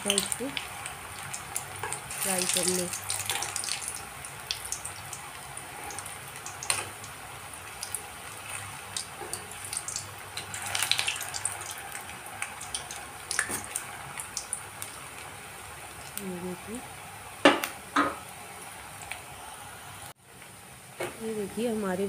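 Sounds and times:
oil sizzling with pops: 0.0 - 19.3.

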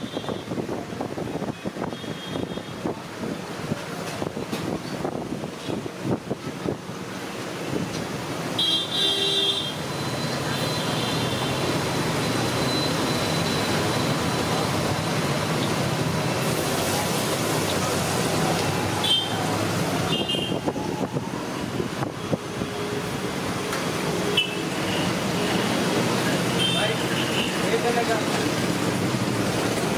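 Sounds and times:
road traffic: 0.0 - 29.9
vehicle horn honking: 8.6 - 9.8, 20.1 - 20.6, 24.3 - 25.1.

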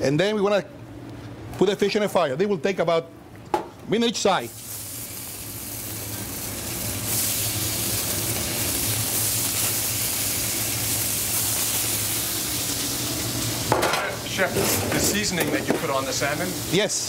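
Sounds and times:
fish sizzling in hot oil: 4.5 - 17.0.

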